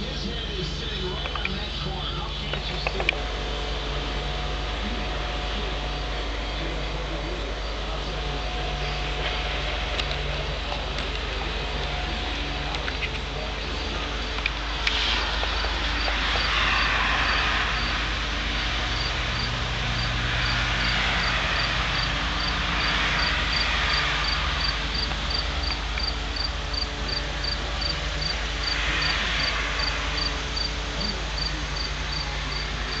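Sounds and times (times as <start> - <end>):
rushing hiss: 13.8 - 33.0
cricket chirping: 19.0 - 23.6, 24.2 - 33.0.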